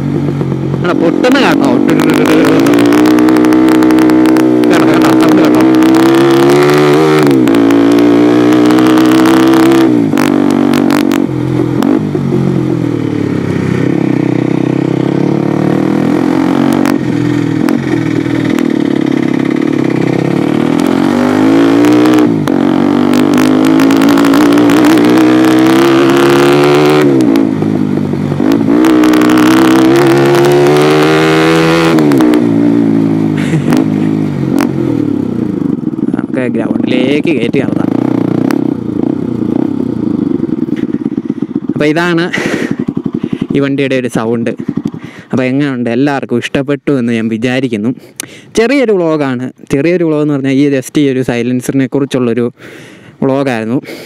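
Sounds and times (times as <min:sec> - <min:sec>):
exhaust crackles: 0:00.0 - 0:46.0
motorcycle engine accelerating: 0:00.0 - 0:49.2.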